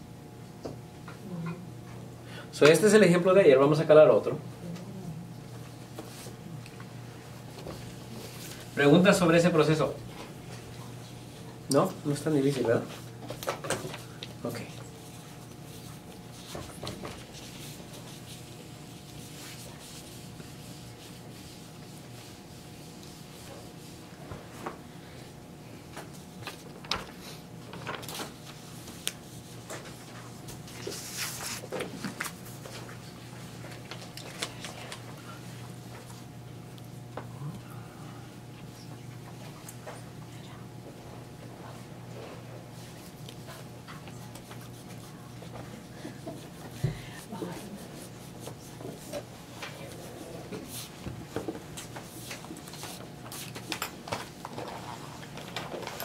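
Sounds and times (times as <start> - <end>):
low room hum: 0.0 - 56.0
paper rustling: 27.7 - 29.2, 29.8 - 33.0.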